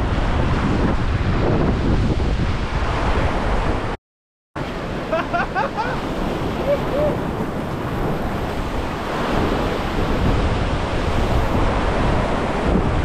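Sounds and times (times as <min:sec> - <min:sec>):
wind rumbling on microphone: 0:00.0 - 0:04.0, 0:04.6 - 0:13.0
ocean swell washing over rocks: 0:04.7 - 0:13.0.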